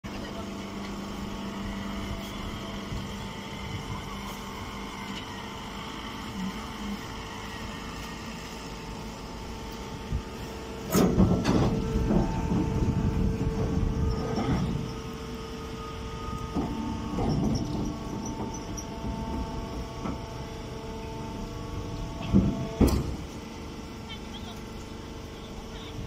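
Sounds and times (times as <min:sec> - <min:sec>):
baling machine humming: 0:00.1 - 0:26.0.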